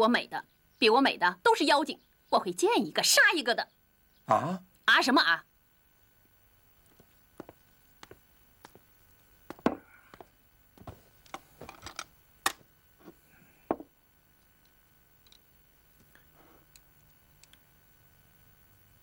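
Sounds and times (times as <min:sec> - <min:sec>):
tableware knocking and clinking: 0:09.6 - 0:09.8, 0:13.7 - 0:13.9.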